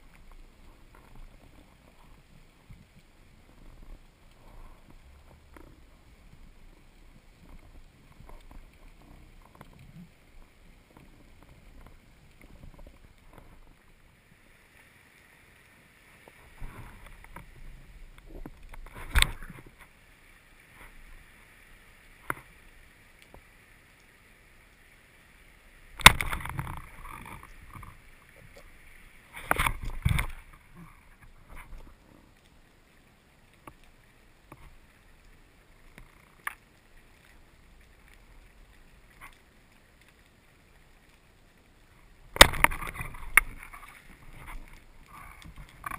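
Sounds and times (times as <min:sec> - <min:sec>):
faint underwater hiss: 0:00.0 - 0:45.9.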